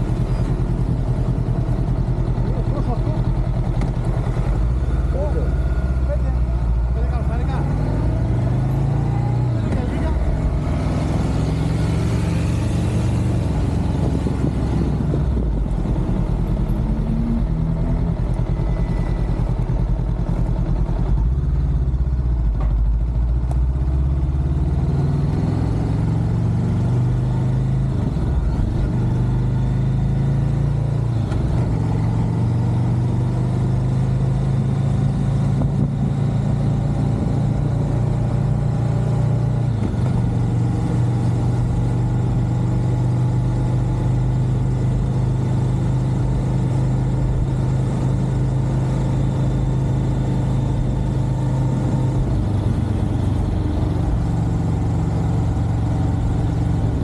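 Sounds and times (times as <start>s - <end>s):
motorcycle engine running: 0.0s - 24.5s, 25.6s - 57.0s.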